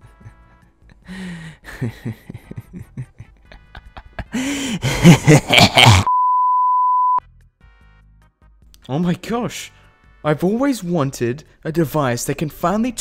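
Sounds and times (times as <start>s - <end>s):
censor beep: 6.1s - 7.2s.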